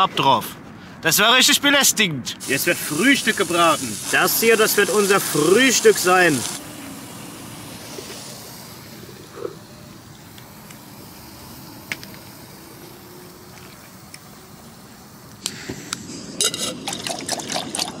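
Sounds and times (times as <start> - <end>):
faint outdoor background: 0.0 - 18.0
gas hissing bursts: 2.4 - 16.4.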